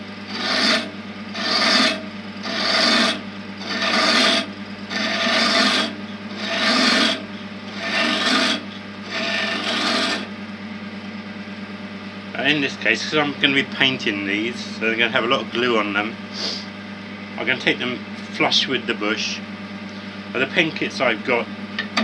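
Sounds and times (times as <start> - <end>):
lathe humming: 0.0 - 22.0
scraper cutting wood on lathe: 0.3 - 10.3.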